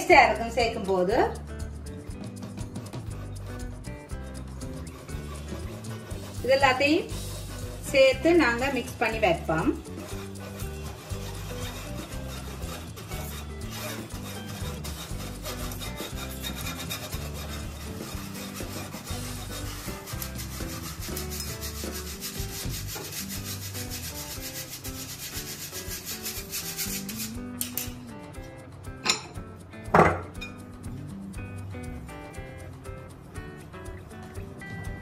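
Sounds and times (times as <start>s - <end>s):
whisk scraping flour through sieve: 2.4s - 27.4s.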